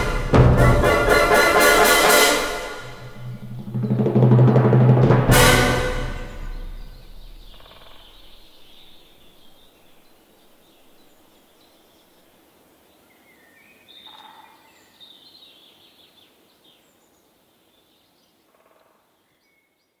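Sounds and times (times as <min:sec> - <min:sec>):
quiet hiss: 0:00.0 - 0:20.0
bird chirps and trills: 0:06.3 - 0:11.8.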